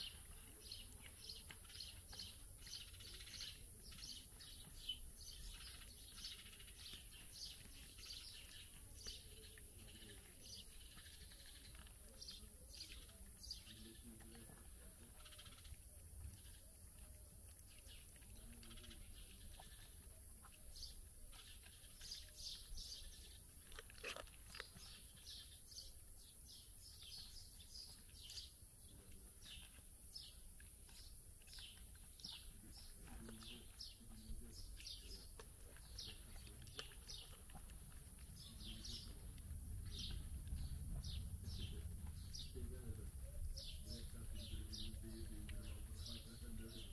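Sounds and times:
small bird chirping: 0.0 - 46.9
low steady rumble: 37.7 - 44.6.

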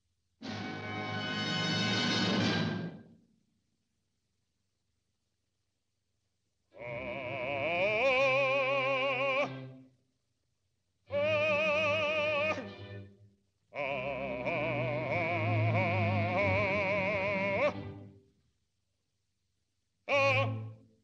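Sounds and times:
man singing operatic notes: 6.7 - 9.7, 11.1 - 12.8, 13.7 - 18.0, 20.0 - 20.9.

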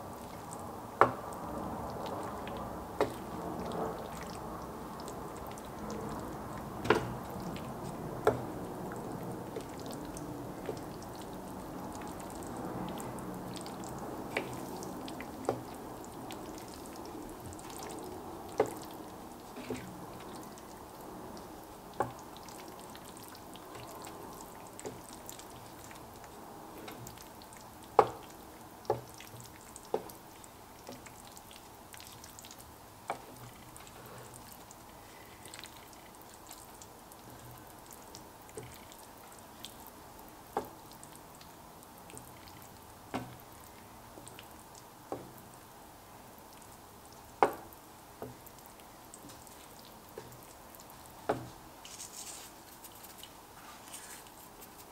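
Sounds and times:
wet squelching of stirred sauce: 1.6 - 39.8
spatula tapping pan: 28.9 - 29.2, 47.4 - 48.4.

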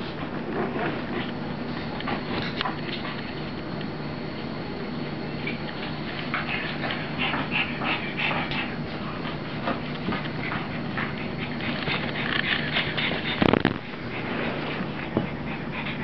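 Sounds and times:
dogs play-fighting noises: 0.0 - 16.0.

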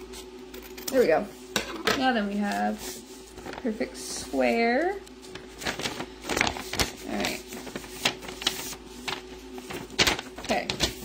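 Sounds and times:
paper rustling and crinkling: 2.4 - 11.0.

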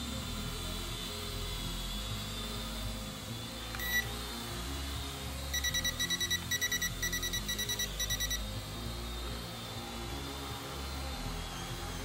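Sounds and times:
remote controller high beeps: 3.8 - 4.1, 5.5 - 8.5.

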